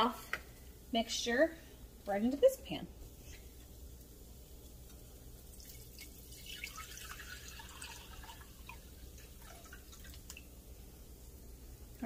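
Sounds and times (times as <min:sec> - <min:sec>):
liquid splashing into saucepan: 0:03.8 - 0:10.7.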